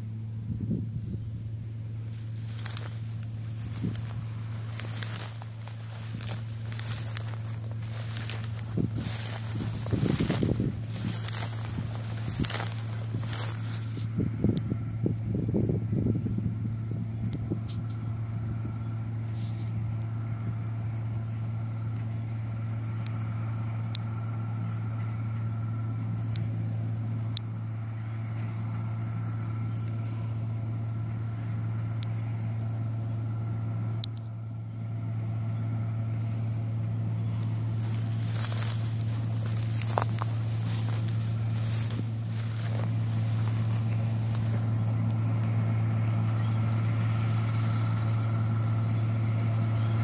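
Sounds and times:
diesel engine humming: 0.0 - 50.0
dry stalks crackling: 1.4 - 15.4, 28.4 - 50.0.

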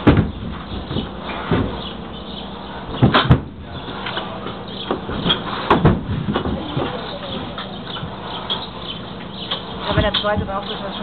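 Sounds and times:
hollow knocks in a trailer: 0.0 - 2.0, 2.9 - 8.7.

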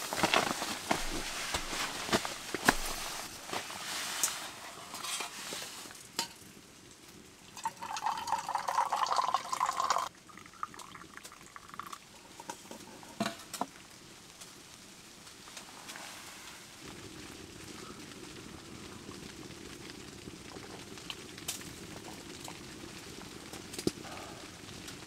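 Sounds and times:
hot drink pouring into mug: 7.5 - 12.7.

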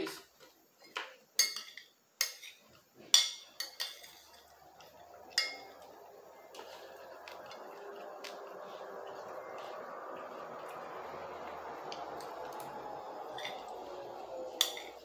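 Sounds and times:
fork clinking on plate: 1.4 - 4.4.

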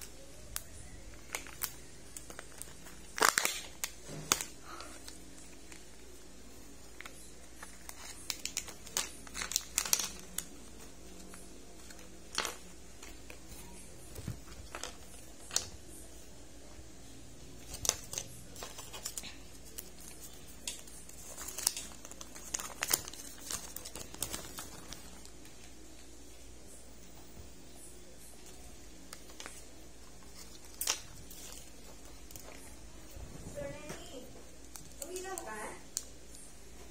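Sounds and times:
packaging crinkling and tearing: 0.0 - 6.2, 6.8 - 15.8, 17.6 - 25.7, 28.4 - 32.7.

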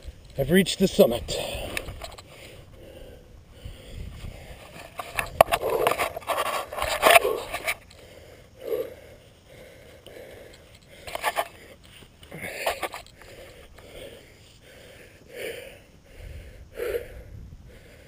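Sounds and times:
loose shale scraping and crunching: 4.1 - 8.0, 10.5 - 13.9.

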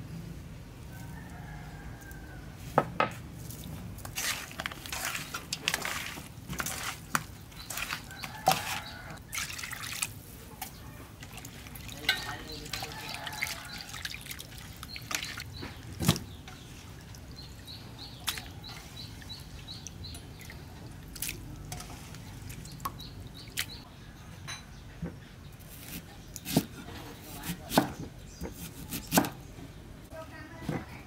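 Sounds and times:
water sloshing in a metal bowl: 3.4 - 23.8.

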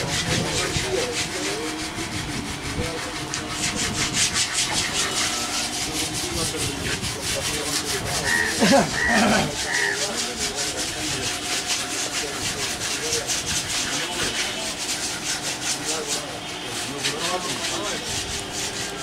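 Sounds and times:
rapid rubbing strokes: 0.0 - 19.0.

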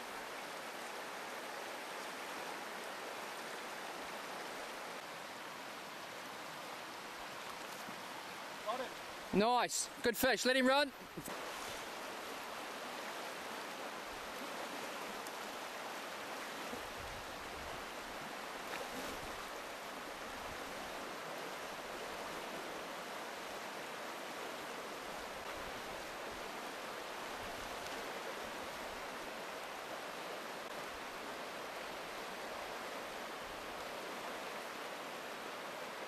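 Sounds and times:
river water rushing: 0.0 - 36.0.

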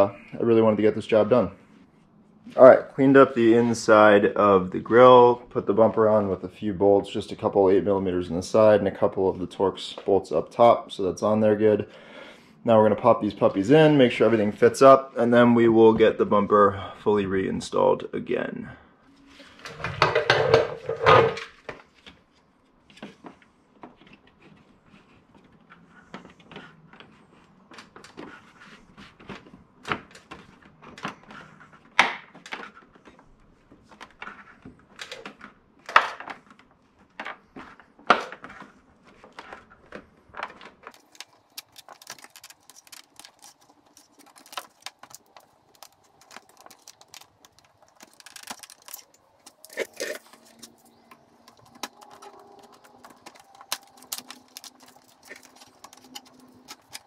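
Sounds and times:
plastic grille rattling and rubbing: 37.5 - 57.0.

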